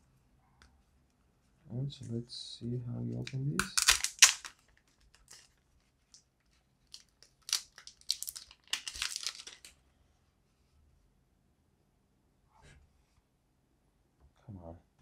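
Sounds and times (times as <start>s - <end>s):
plastic film crinkling: 3.2s - 9.8s.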